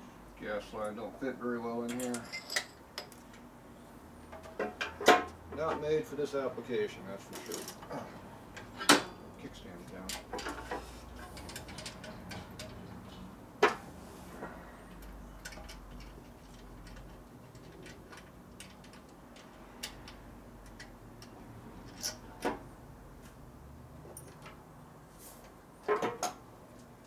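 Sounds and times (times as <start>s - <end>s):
clicks and clinks of parts: 1.8s - 3.5s, 7.3s - 7.9s, 9.8s - 13.8s, 14.9s - 22.6s, 24.0s - 24.6s.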